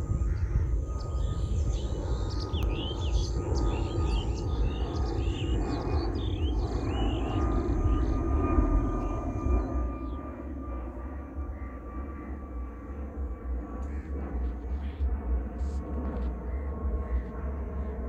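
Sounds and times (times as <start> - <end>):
jet airliner rumble overhead: 0.0 - 18.0
bird chirping: 0.4 - 10.3.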